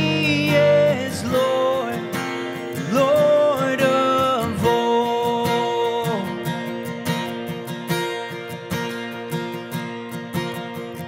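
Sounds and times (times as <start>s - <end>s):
man singing: 0.0s - 7.0s
strummed acoustic guitar: 0.0s - 11.0s.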